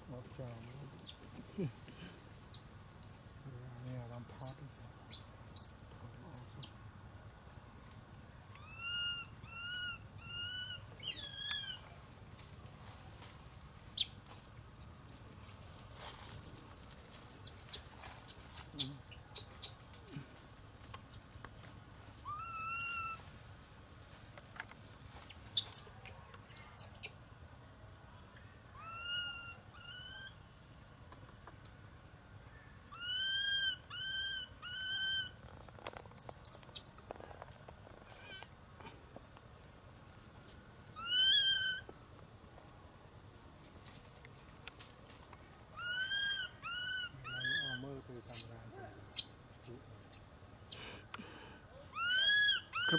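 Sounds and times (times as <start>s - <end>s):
macaque coo call: 8.5s - 12.4s, 22.2s - 23.2s, 28.8s - 30.4s, 32.9s - 35.4s, 41.0s - 41.9s, 45.8s - 50.8s, 51.8s - 52.9s
infant monkey crying: 8.6s - 11.8s, 22.2s - 23.2s, 28.8s - 30.4s, 32.9s - 35.4s, 41.0s - 41.9s, 45.8s - 50.8s, 51.8s - 52.9s.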